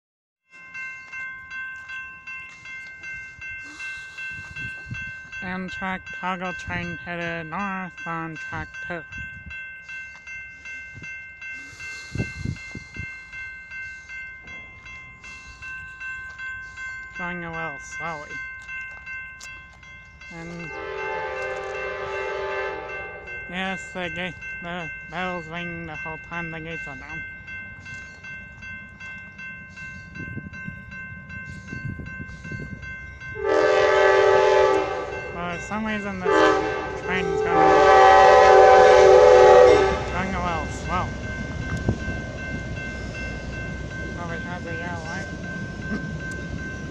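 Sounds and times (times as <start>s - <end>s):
crossing warning bell ringing: 0.5s - 46.9s
train rumbling: 0.7s - 46.9s
locomotive horn blowing: 20.7s - 23.3s, 33.4s - 35.5s, 36.1s - 40.4s.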